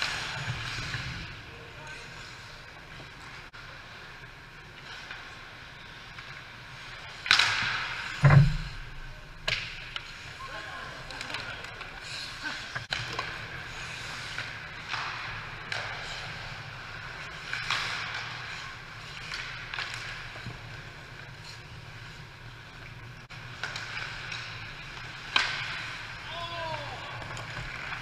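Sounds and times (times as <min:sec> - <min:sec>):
skate blades scraping ice: 0:00.0 - 0:04.0, 0:09.6 - 0:28.0
hockey stick crack: 0:06.8 - 0:08.3, 0:09.4 - 0:10.3, 0:12.8 - 0:20.8, 0:23.4 - 0:26.3.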